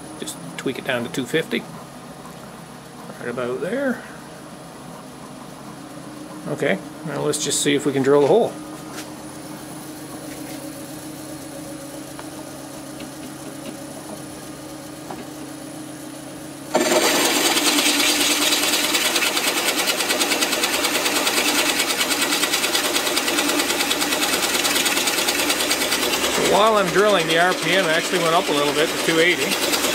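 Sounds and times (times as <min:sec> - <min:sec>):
drill press motor hum: 0:09.2 - 0:29.9
drill bit cutting wood with chatter: 0:16.7 - 0:29.9.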